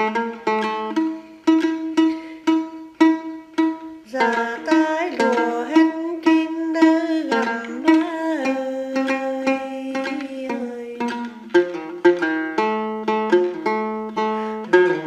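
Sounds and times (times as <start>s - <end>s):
plucked lute: 0.0s - 15.0s
person singing: 4.0s - 11.7s.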